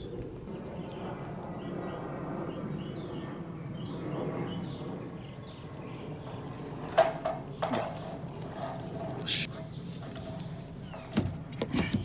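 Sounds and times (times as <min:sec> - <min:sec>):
small birds chirping: 0:07.9 - 0:12.0.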